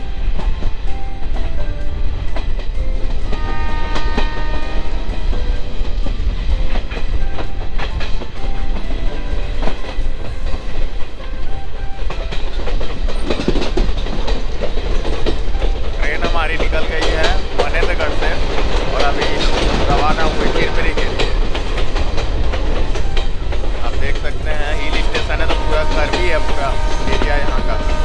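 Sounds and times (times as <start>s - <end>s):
heavy train rumble: 0.0s - 28.0s
train wheels clattering: 0.0s - 28.0s
train horn: 3.2s - 5.8s, 24.5s - 28.0s
wind on microphone: 16.7s - 28.0s.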